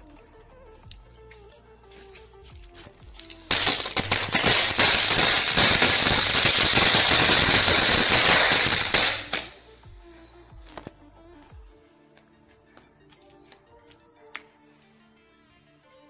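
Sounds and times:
firecracker string popping: 3.0 - 9.6.

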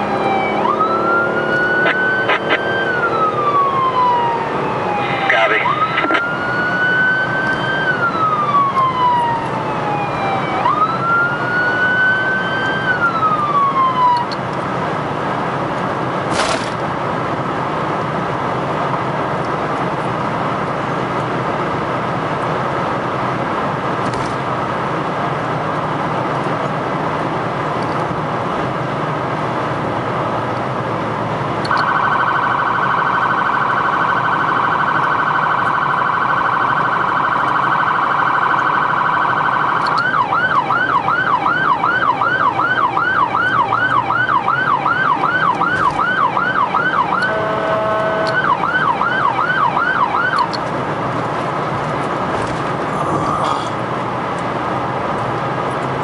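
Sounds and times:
siren wailing: 0.0 - 14.4, 31.7 - 50.6
vehicle road noise: 0.0 - 56.0.

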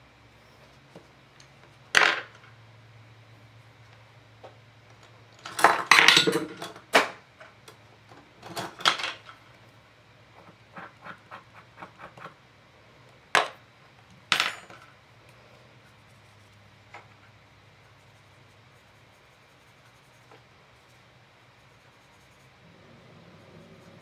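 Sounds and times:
craft tools clattering on table: 5.4 - 7.2, 8.4 - 9.4, 14.3 - 14.9.

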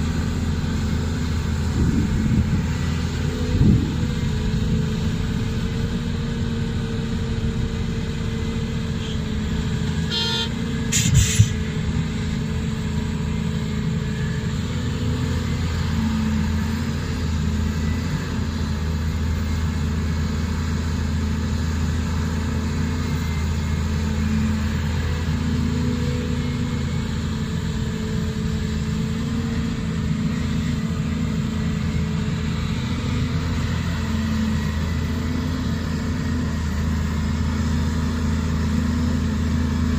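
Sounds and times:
diesel engines running: 0.0 - 39.9
horn toots: 10.0 - 11.5.

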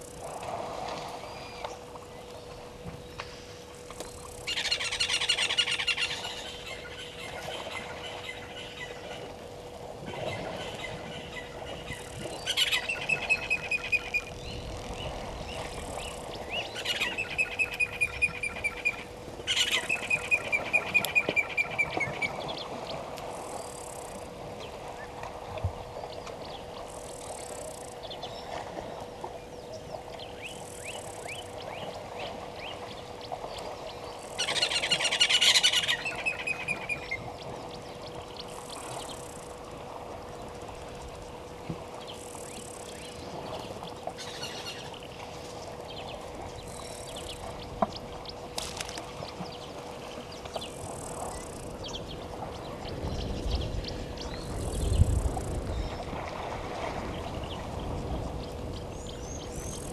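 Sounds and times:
steady faint hum: 0.0 - 59.9.

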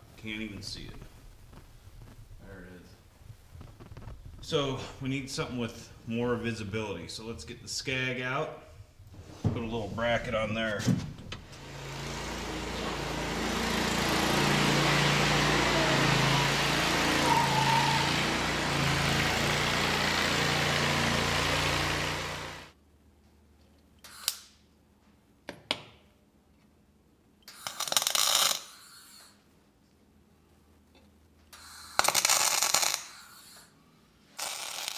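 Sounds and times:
welding crackle: 0.2 - 2.4, 27.5 - 28.9, 31.6 - 33.5, 34.4 - 34.9
mower engine running: 11.4 - 22.8.

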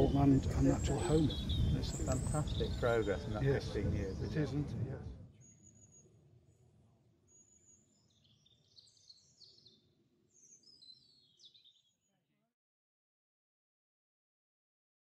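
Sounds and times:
songbird chirps: 0.0 - 4.7, 5.3 - 12.2.

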